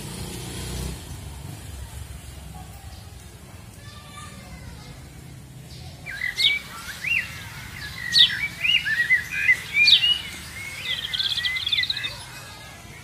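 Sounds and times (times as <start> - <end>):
songbird singing: 4.8 - 13.0.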